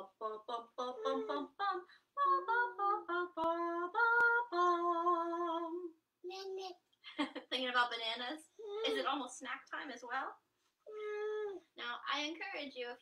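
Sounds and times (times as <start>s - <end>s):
woman humming a melody: 0.0s - 5.9s.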